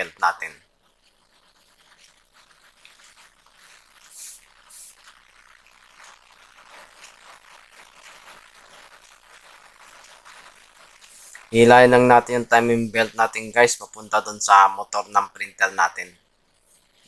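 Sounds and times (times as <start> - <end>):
faint scratches and rubs: 0.0 - 14.4
belt scraping rasps: 0.5 - 12.8.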